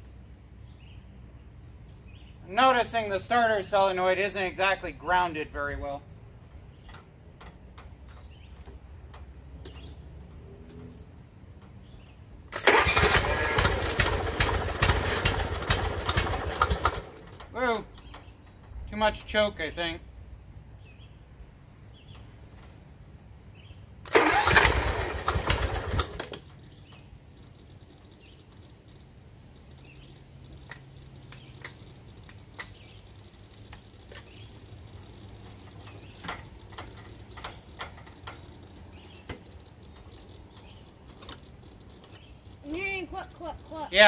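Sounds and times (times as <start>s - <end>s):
starter cranking mower engine: 12.5s - 17.6s, 24.0s - 29.0s, 30.0s - 43.8s.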